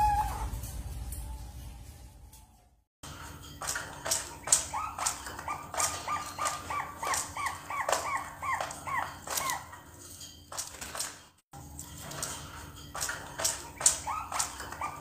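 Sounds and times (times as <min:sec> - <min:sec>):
doves calling: 0:04.2 - 0:10.0.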